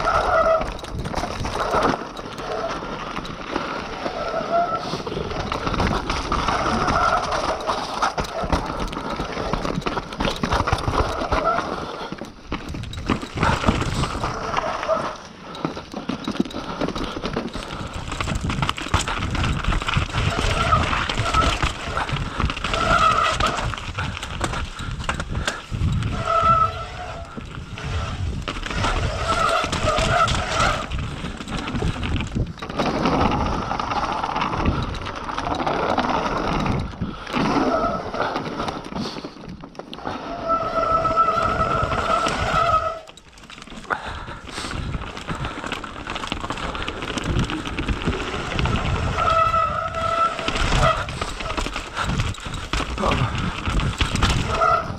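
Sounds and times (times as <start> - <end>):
bike tyres knocking over rocks: 0.0 - 39.7, 40.8 - 54.9
bike rattling: 0.0 - 54.9
wind on microphone: 46.7 - 54.9.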